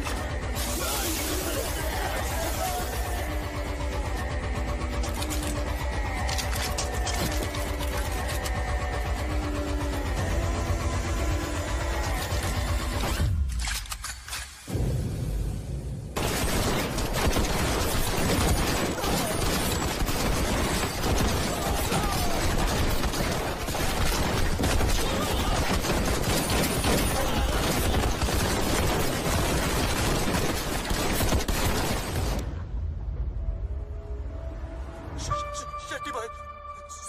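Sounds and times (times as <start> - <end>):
automatic gunfire: 16.2 - 32.4.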